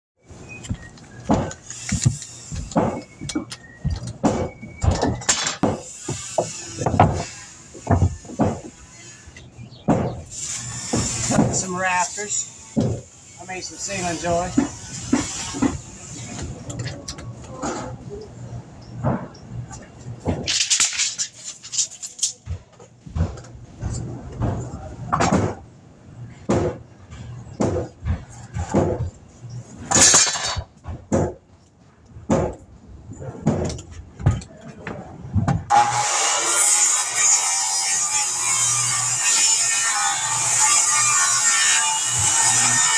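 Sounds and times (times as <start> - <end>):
lumber boards clattering: 0.6 - 9.2, 9.8 - 12.0, 19.0 - 25.6, 26.4 - 29.2, 29.8 - 31.5.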